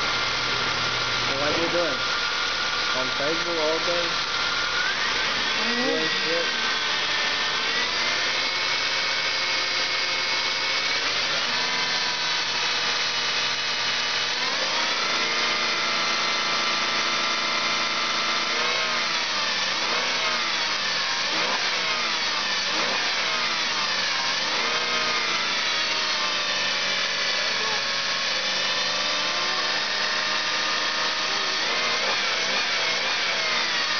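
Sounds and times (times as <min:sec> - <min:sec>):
car engine revving: 0:14.2 - 0:33.9.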